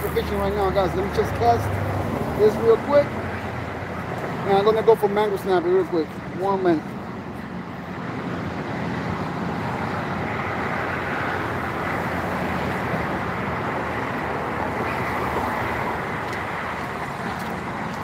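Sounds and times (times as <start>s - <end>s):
road traffic rushing past: 0.0s - 18.0s
wind: 0.0s - 18.0s.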